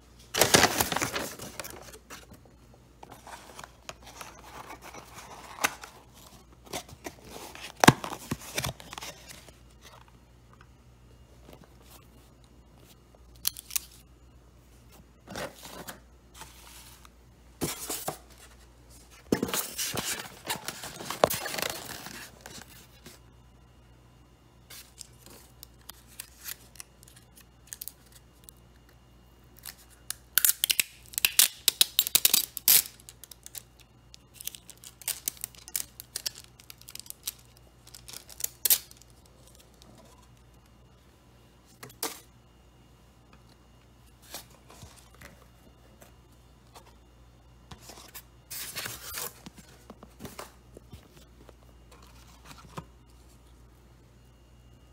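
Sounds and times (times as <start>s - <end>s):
paper packaging rustling: 0.3s - 2.4s, 3.0s - 10.1s, 15.3s - 23.2s, 34.3s - 40.4s
foil lid crackling and tearing: 34.3s - 39.7s.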